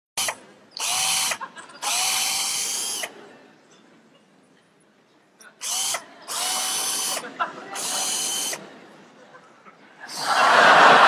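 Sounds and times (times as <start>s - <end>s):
power drill motor whine: 0.2s - 3.1s, 5.6s - 7.2s, 7.8s - 8.6s.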